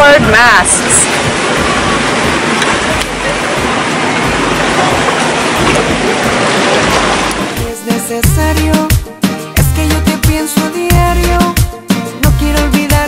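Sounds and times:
wind: 0:00.0 - 0:07.6
sea surf at shore: 0:00.0 - 0:08.2.

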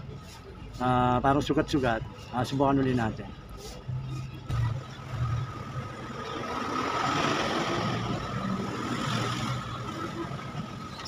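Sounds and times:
motor vehicle passing: 0:03.9 - 0:11.0.

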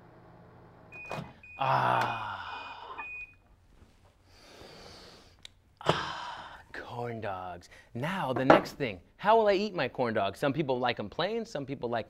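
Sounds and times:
microwave oven humming: 0:00.0 - 0:03.1.

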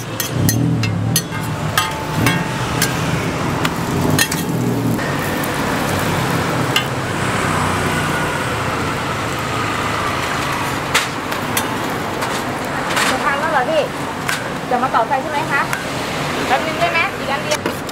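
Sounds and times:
spatulas clinking on griddle: 0:00.0 - 0:04.6
steady background noise: 0:00.0 - 0:17.9.

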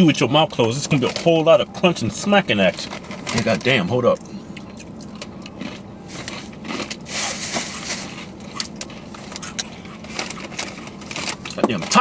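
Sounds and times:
chips being chewed: 0:04.6 - 0:11.9.

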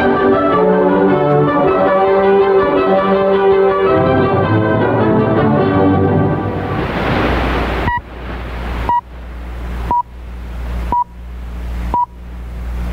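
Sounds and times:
shortwave radio hiss: 0:06.7 - 0:12.9
time signal pips: 0:07.8 - 0:08.1, 0:08.9 - 0:09.1, 0:09.9 - 0:10.1, 0:10.9 - 0:11.2.

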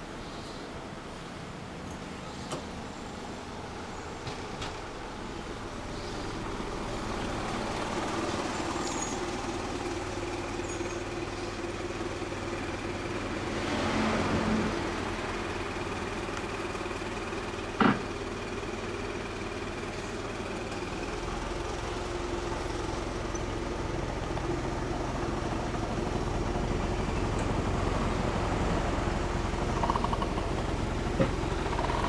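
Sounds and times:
scooter engine idling: 0:00.0 - 0:13.5, 0:14.7 - 0:32.0.

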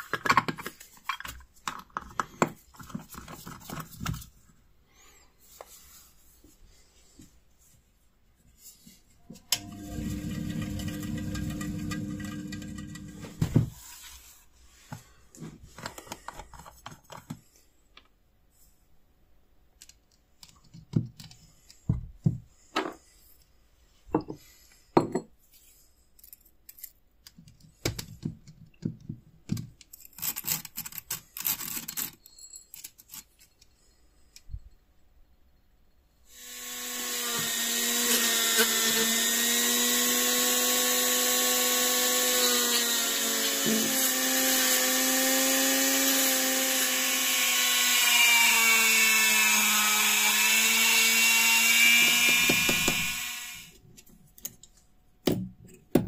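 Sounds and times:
rotary tool whining: 0:09.6 - 0:13.5, 0:36.3 - 0:53.8.

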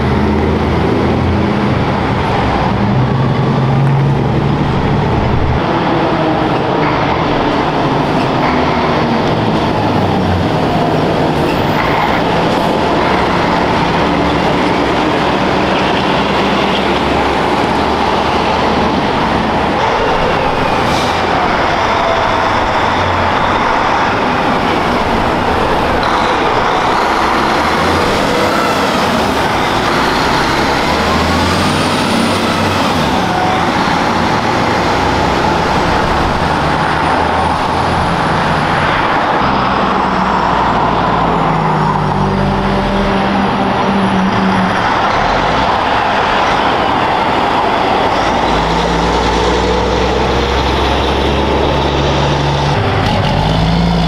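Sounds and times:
diesel trucks driving past: 0:00.0 - 0:54.0.

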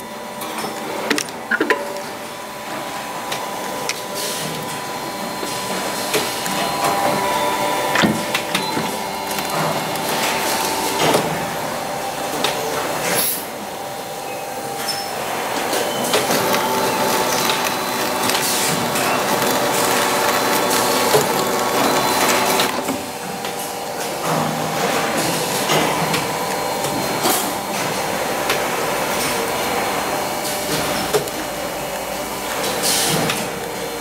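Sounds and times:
machine humming: 0:00.0 - 0:12.7, 0:13.8 - 0:23.2.

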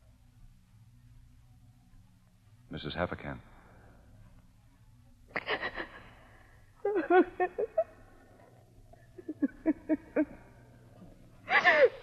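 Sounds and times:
low steady hum: 0:00.0 - 0:12.0
woman sobbing: 0:05.3 - 0:10.7, 0:11.4 - 0:12.0.

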